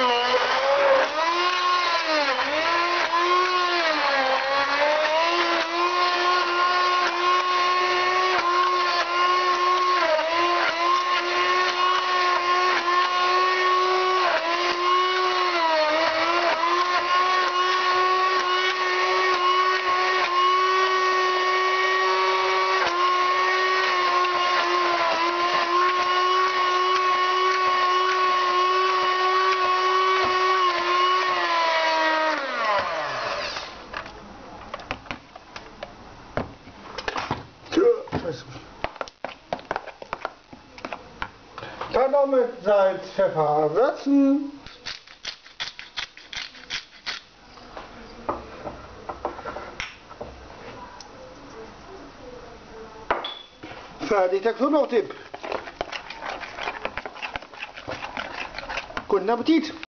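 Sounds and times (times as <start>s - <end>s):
stick blender motor whine: 0.0s - 34.0s, 54.6s - 59.5s.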